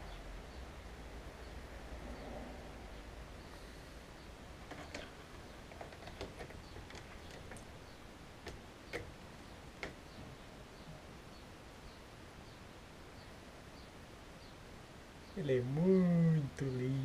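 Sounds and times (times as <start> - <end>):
faint clicks and taps: 4.6 - 7.7, 9.8 - 10.3.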